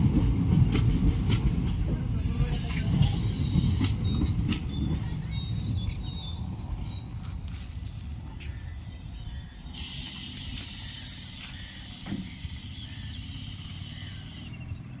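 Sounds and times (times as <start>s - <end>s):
train low rumble: 0.0s - 15.0s
high hiss: 9.8s - 14.4s.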